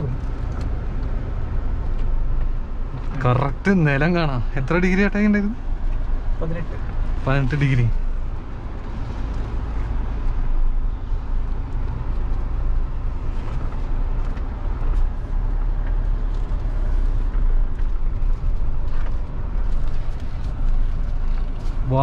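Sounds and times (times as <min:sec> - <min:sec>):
diesel engine deep rumble: 0:00.0 - 0:22.0.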